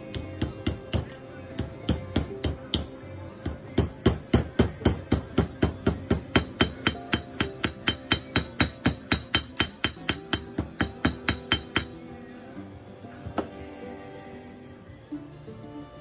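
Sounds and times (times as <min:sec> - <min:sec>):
hammer tapping on metal: 0:00.1 - 0:12.0.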